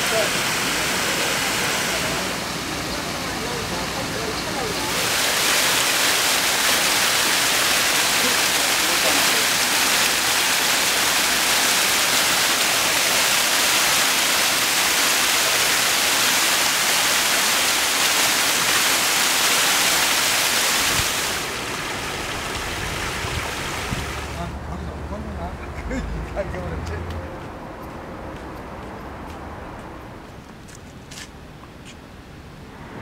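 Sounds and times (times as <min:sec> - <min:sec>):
waterfall splashing over rocks: 0:00.0 - 0:24.5.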